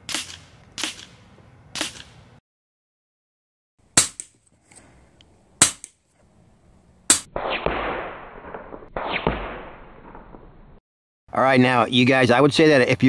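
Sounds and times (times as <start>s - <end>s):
air rifle shots: 0.0s - 2.2s, 4.0s - 4.4s, 5.6s - 6.0s, 7.1s - 10.6s.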